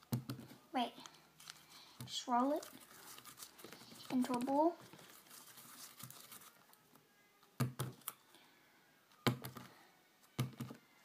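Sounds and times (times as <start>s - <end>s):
faint rustle of hands: 1.0s - 6.8s.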